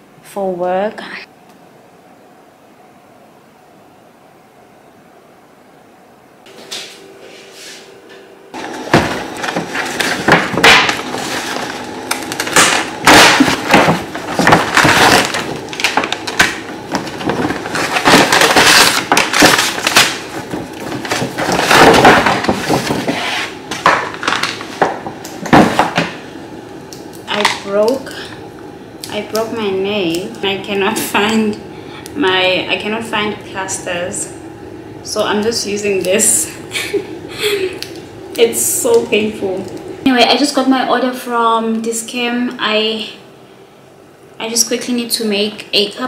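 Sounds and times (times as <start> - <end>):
faint steady hum: 0.0 - 46.0
paper bag crinkling and rustling: 8.8 - 23.2.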